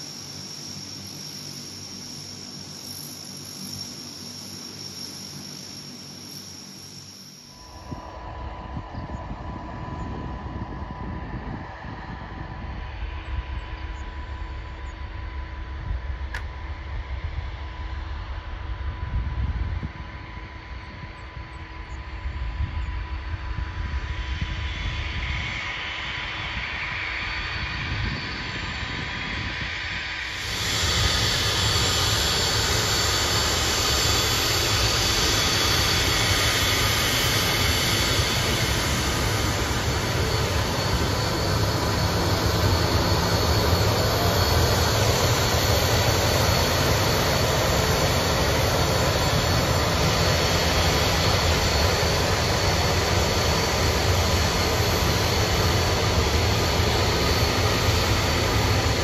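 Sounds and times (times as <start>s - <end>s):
jet engines whining and rumbling: 0.0s - 59.0s.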